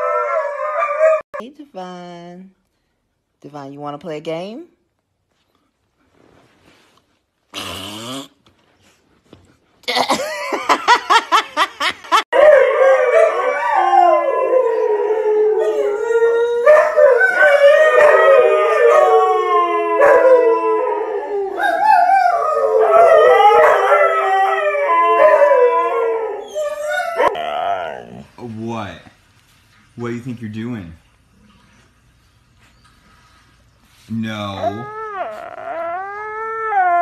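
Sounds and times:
husky howling: 0:00.0 - 0:01.2, 0:12.4 - 0:28.3.

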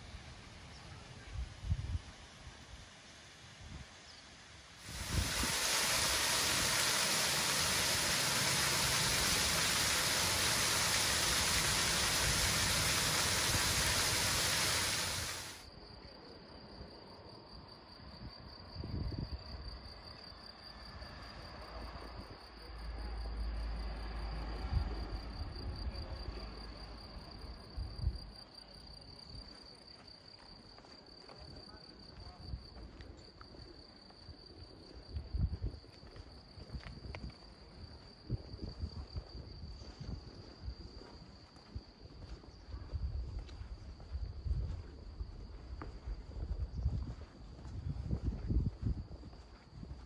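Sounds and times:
loud rushing hiss: 0:00.0 - 0:15.6
insects trilling: 0:04.0 - 0:16.0.

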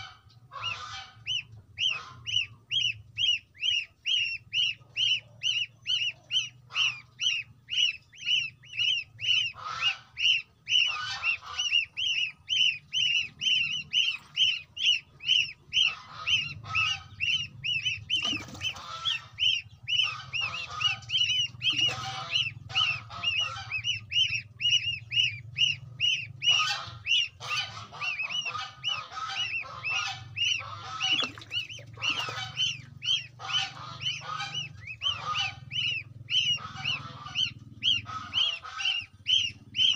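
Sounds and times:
goslings peeping: 0:00.0 - 0:39.9
rough lower goose calls: 0:00.0 - 0:39.9
faint low hum: 0:00.2 - 0:39.9.

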